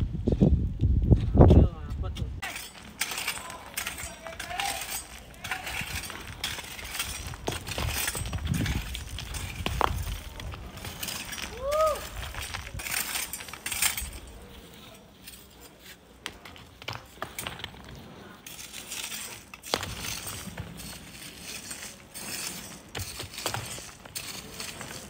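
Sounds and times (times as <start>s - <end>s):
metal tools striking gravel: 2.4s - 15.6s, 18.4s - 25.0s.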